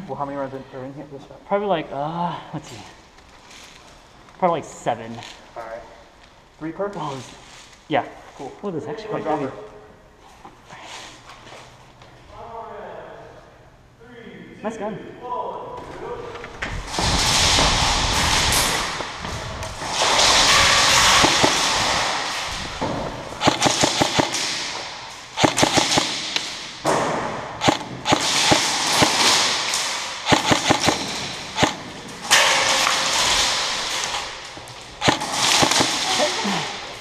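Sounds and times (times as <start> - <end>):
airsoft gunfire cracks: 19.9 - 22.4, 23.3 - 34.4, 35.0 - 36.4.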